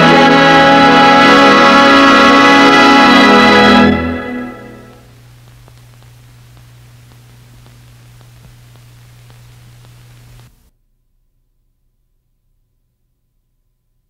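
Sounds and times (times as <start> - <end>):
orchestral chord: 0.0 - 5.0
film soundtrack hiss: 0.0 - 10.7
low hum: 0.0 - 13.4
faint scattered clicks: 4.9 - 10.7.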